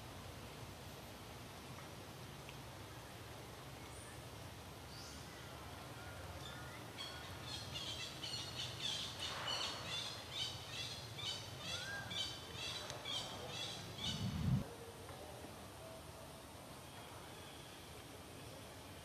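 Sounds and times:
bird chirping: 6.4 - 14.6.

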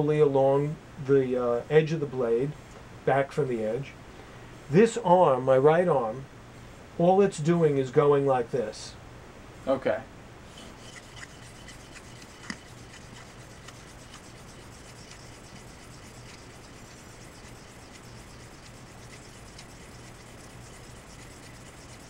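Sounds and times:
blade rubbing on whetstone: 10.5 - 22.0.

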